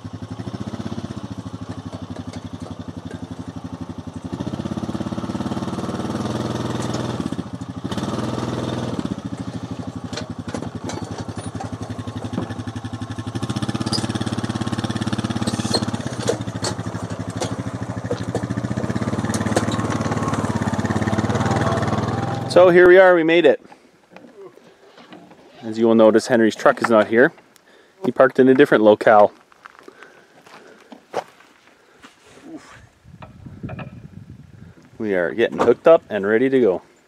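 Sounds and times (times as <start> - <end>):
vehicle engine running: 0.0 - 22.9.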